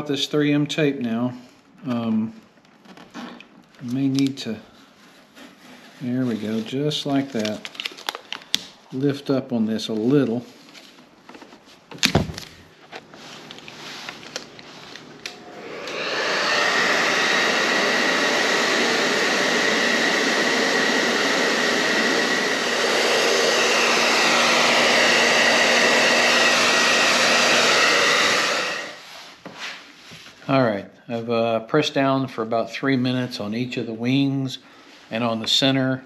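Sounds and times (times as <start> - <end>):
hair dryer running: 13.2 - 29.1.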